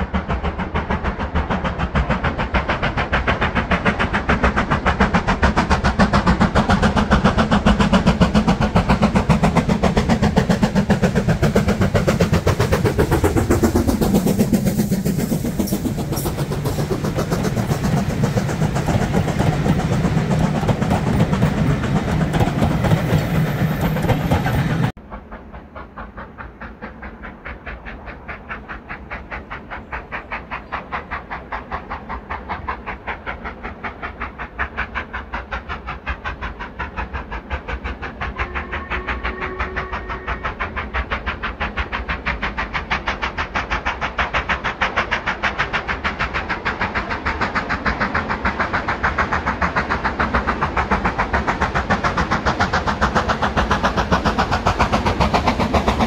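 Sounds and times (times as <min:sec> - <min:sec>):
steam locomotive exhaust beats: 0:00.0 - 0:56.0.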